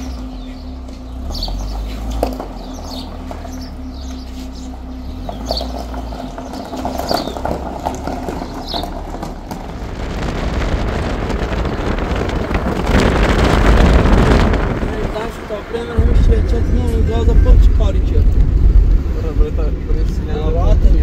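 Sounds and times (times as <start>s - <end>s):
small birds chirping: 0.0s - 19.4s
low steady rumble: 0.0s - 21.0s
rushing noise: 9.4s - 21.0s.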